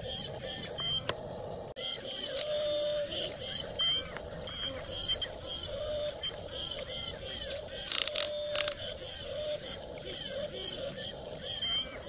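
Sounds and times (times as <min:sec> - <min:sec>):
birds chirping: 0:00.0 - 0:12.0
small electric motor whirring: 0:05.5 - 0:09.6
quick run of clicks: 0:07.5 - 0:08.8.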